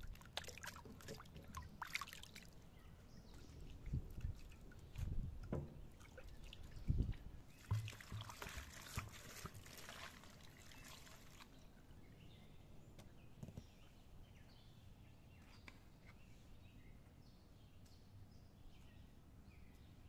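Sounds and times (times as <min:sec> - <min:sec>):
water splashing over vegetables: 0:00.0 - 0:02.6, 0:03.4 - 0:11.6
dull thumps: 0:05.4 - 0:05.9, 0:07.7 - 0:08.5.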